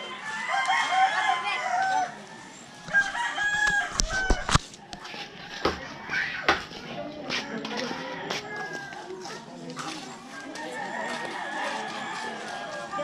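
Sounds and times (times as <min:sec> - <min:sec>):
rooster crowing: 0:02.9 - 0:04.5.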